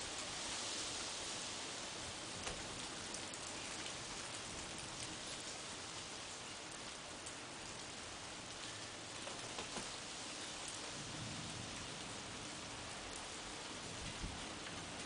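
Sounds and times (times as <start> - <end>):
steady rain hiss: 0.0 - 15.0
raindrops ticking: 6.4 - 11.0.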